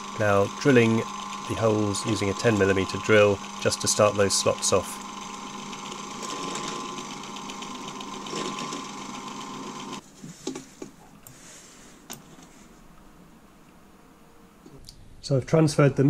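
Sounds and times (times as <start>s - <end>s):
bench drill cutting metal: 0.0s - 10.0s.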